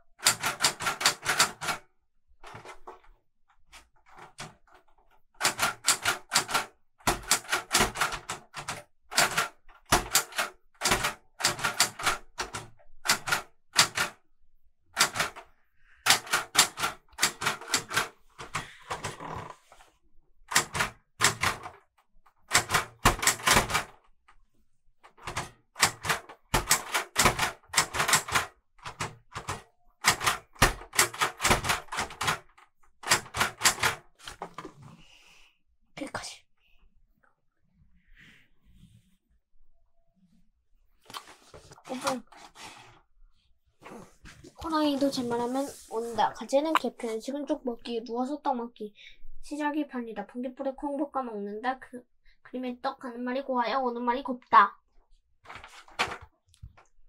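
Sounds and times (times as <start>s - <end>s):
typewriter typing: 0.1s - 1.8s, 2.4s - 3.1s, 4.0s - 14.2s, 15.0s - 19.6s, 20.5s - 24.1s, 25.0s - 34.7s, 55.5s - 56.3s.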